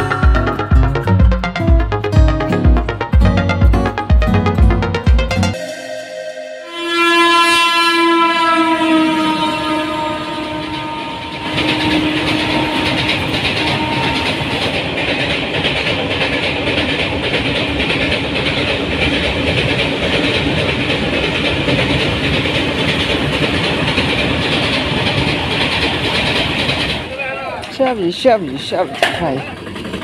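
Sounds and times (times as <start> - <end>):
locomotive horn: 5.5 - 14.8
train wheels clattering on rails: 10.4 - 30.0.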